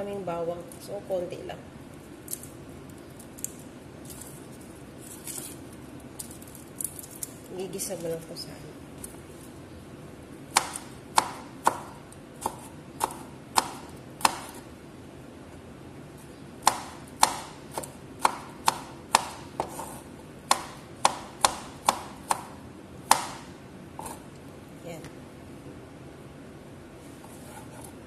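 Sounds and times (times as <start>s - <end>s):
knife chopping on wooden board: 10.5s - 14.6s, 16.6s - 24.2s.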